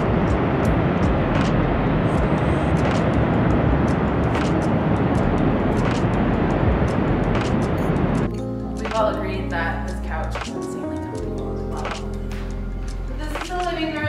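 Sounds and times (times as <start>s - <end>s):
heavy ocean surf: 0.0s - 8.3s
wind rumble on microphone: 0.0s - 10.5s
wind roaring: 0.0s - 14.0s.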